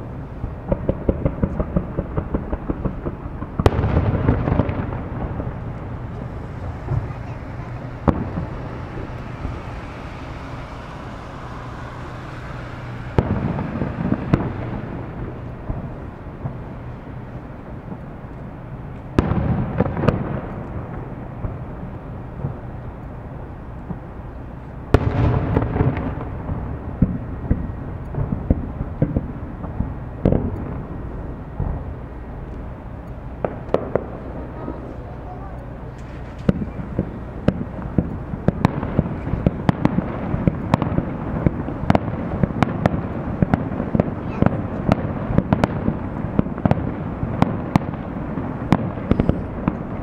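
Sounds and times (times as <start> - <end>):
firework crackling: 0.0 - 50.0
rolling rumble: 0.0 - 50.0
small firework pops: 0.6 - 9.8, 24.9 - 30.9, 33.4 - 34.3, 35.5 - 48.0, 48.7 - 50.0
firework shells bursting: 0.6 - 16.9, 35.6 - 50.0.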